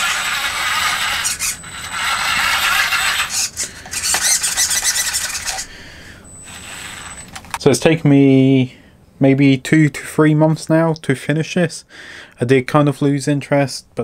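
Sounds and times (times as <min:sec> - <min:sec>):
toy tractor electric motor whirring: 0:00.0 - 0:05.8, 0:06.4 - 0:07.6.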